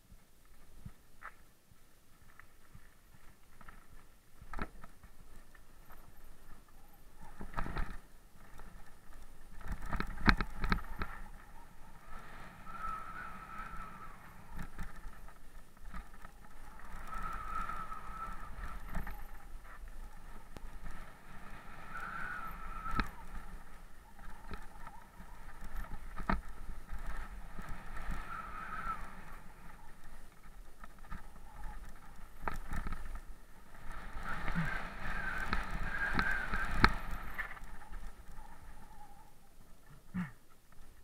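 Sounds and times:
bike clattering over bumps: 3.4s - 11.8s, 14.4s - 17.8s, 22.8s - 28.2s
high wavering whine: 9.5s - 40.0s.

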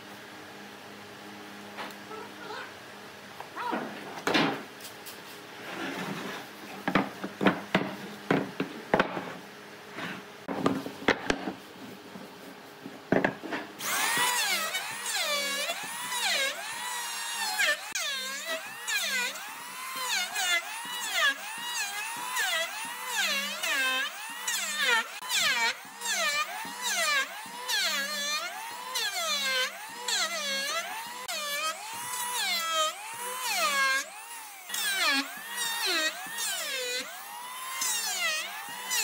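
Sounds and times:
wood knocking: 6.8s - 9.4s
power tool whining: 13.8s - 39.0s.

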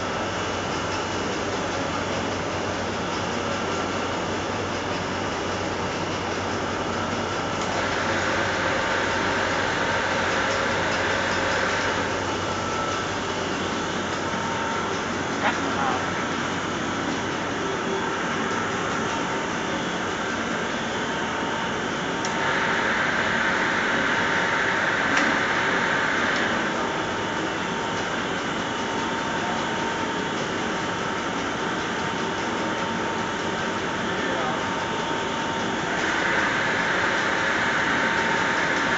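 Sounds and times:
conveyor and rollers running: 0.0s - 38.9s
faint steady whine: 0.0s - 38.9s.

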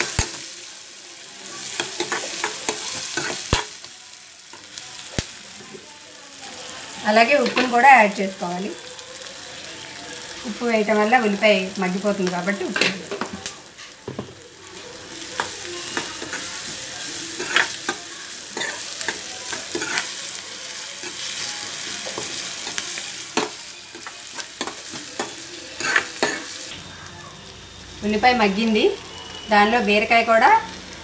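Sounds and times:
onions sizzling in hot oil: 0.0s - 31.0s
metal spoon scraping a pan: 1.7s - 3.8s, 14.8s - 20.3s, 21.0s - 26.6s.

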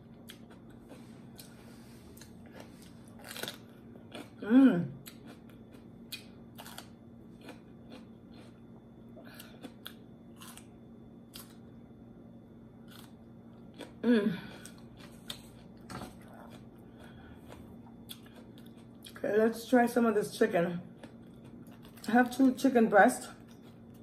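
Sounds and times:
crunching raw pepper: 0.0s - 11.7s, 12.8s - 19.2s.

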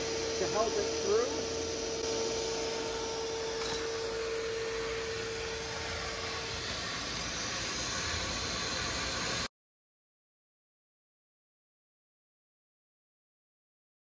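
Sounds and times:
shop vac running: 0.0s - 9.5s.

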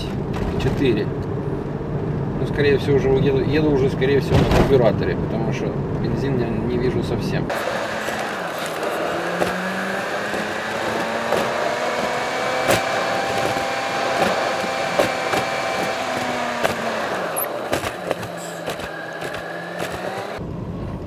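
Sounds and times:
car knocks over road: 4.3s - 4.9s, 7.9s - 11.8s, 12.5s - 20.4s
car engine running: 6.9s - 21.0s.

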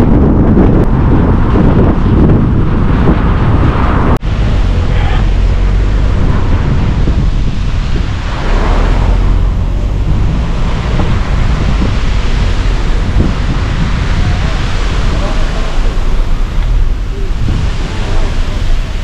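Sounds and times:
road noise: 0.0s - 19.0s
wind buffeting microphone: 0.0s - 19.0s.

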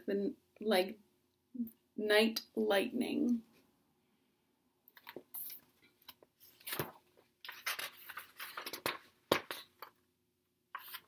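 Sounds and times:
book pages rustling: 4.9s - 10.0s, 10.7s - 11.0s
page snapping: 6.1s - 9.9s.

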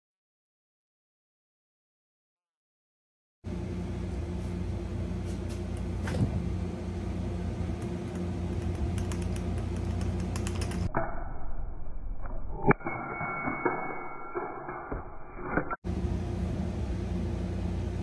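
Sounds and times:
low mechanical hum: 3.5s - 12.7s, 14.7s - 18.0s.

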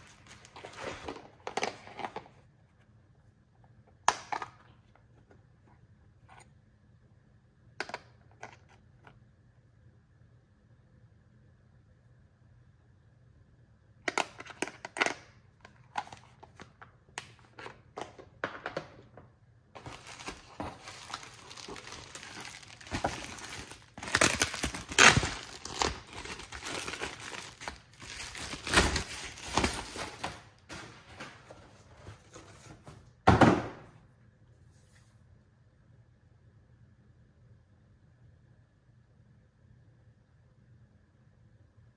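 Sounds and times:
bubble wrap crinkling: 19.8s - 31.3s.

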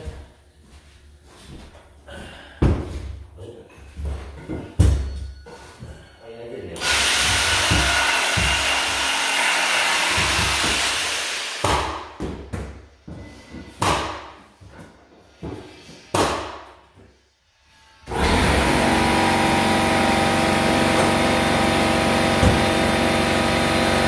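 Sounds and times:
power tool cutting wood: 6.8s - 11.7s, 18.0s - 24.0s
sharp knocks: 7.3s - 9.0s.

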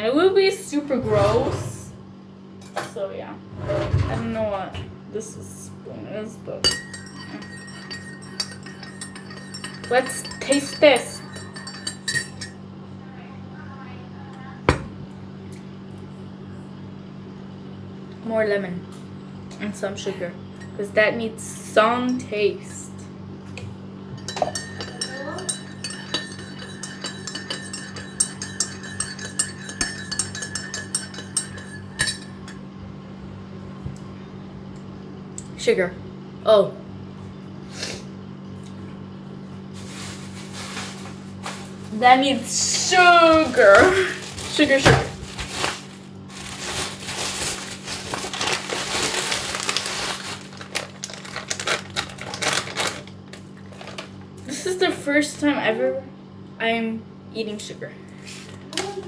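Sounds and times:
spoon clinking in ceramic mug: 6.6s - 12.6s, 24.2s - 32.6s
plastic bag crinkling: 39.8s - 42.0s, 43.5s - 54.2s.

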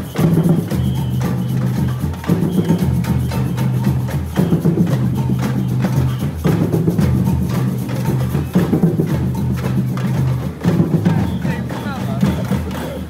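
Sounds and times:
drums beating: 0.0s - 13.0s.

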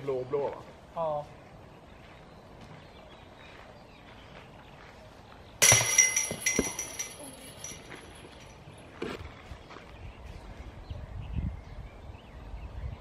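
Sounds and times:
chains clattering and ringing: 5.6s - 8.7s
disc striking chain basket: 5.6s - 8.8s.

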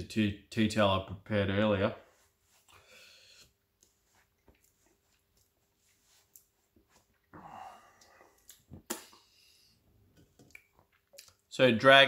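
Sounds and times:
breathy exhale: 2.7s - 3.5s, 7.4s - 8.4s.

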